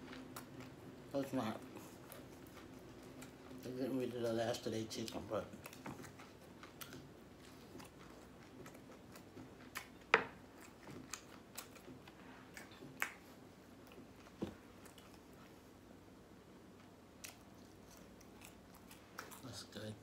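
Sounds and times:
person chewing: 0.0 - 0.9, 5.1 - 15.8, 16.8 - 19.6.

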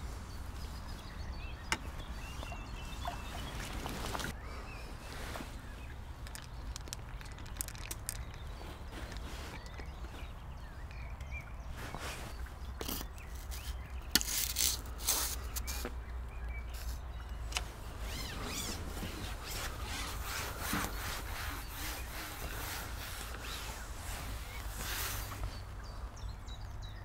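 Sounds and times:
fishing pole rubbing and scraping: 11.8 - 15.9, 18.0 - 25.6.

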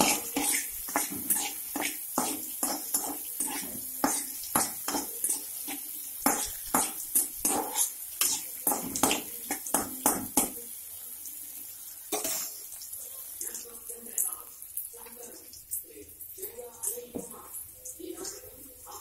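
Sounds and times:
utensil scraping a pan: 0.0 - 9.6
tomatoes sizzling in oil: 0.0 - 19.0.

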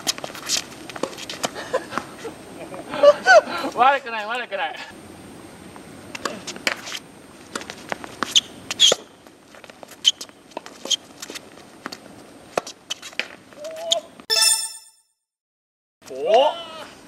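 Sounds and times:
shoe squeaks: 0.0 - 1.5, 8.0 - 9.2, 9.8 - 11.4, 12.9 - 14.9.

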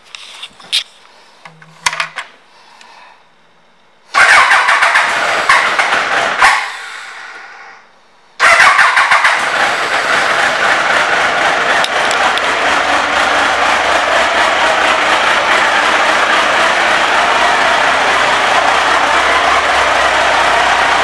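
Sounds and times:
motorcycle engine starting and running: 4.1 - 6.9, 8.4 - 21.0.

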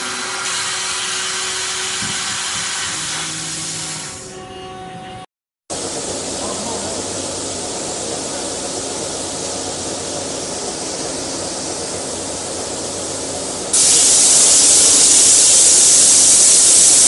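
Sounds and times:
plasma torch cutting steel: 0.0 - 4.2, 5.7 - 17.0
steady hiss: 5.7 - 17.0.

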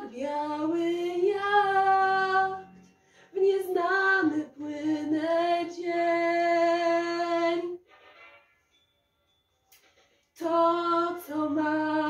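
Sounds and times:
woman singing pop song: 0.0 - 2.6, 3.3 - 7.8, 10.4 - 12.0.

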